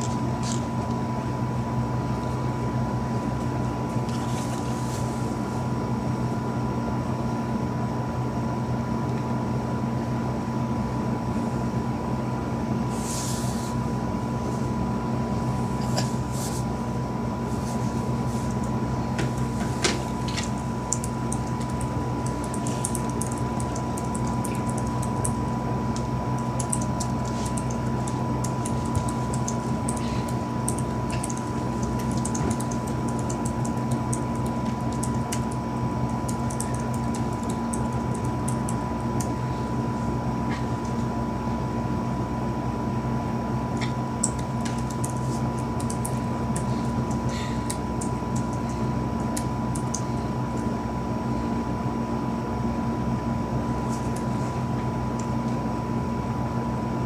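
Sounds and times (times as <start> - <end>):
mechanical hum with high tone: 0.0 - 57.0
light rapid clicking: 44.2 - 50.1.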